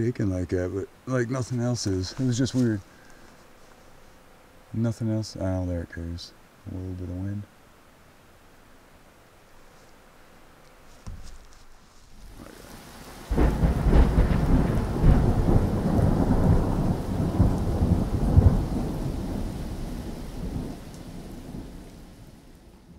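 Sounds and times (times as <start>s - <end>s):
steady rain: 0.0s - 22.9s
thunder rumbling: 12.3s - 22.9s.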